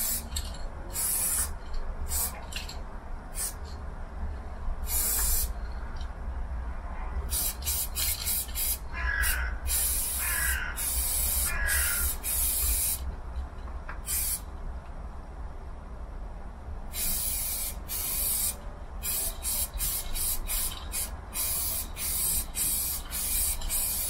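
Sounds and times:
spray paint can hissing: 0:00.0 - 0:03.7, 0:04.8 - 0:05.6, 0:07.3 - 0:13.0, 0:14.0 - 0:14.4, 0:16.9 - 0:24.0.

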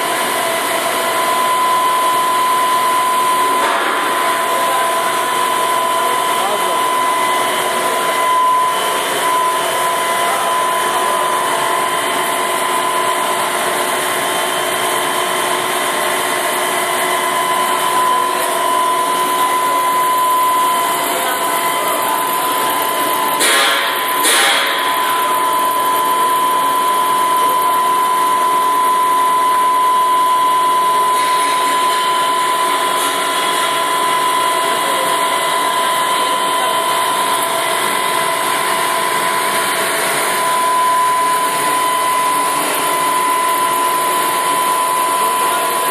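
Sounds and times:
machine drone with motor whine: 0:00.0 - 0:45.9.

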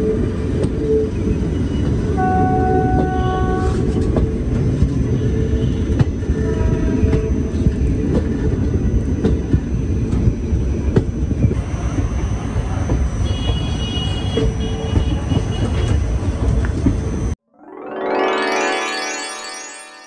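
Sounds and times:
train wheels rumbling on track: 0:00.0 - 0:17.4
music: 0:17.5 - 0:20.0.

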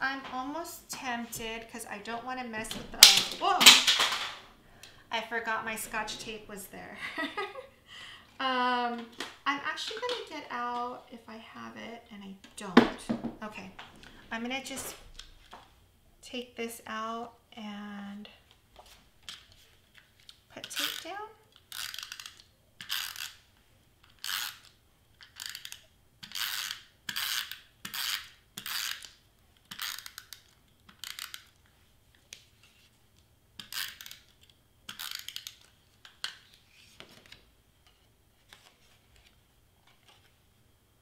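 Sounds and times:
adhesive tape pulled from dispenser: 0:34.9 - 0:35.7.

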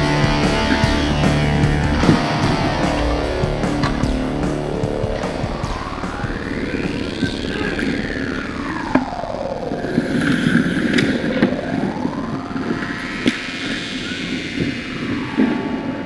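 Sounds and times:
hiss sweeping in pitch: 0:01.4 - 0:08.8.

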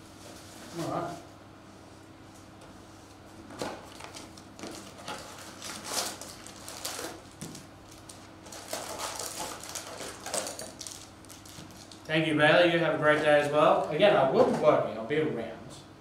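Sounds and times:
card packs rustling and crinkling: 0:03.6 - 0:12.1.

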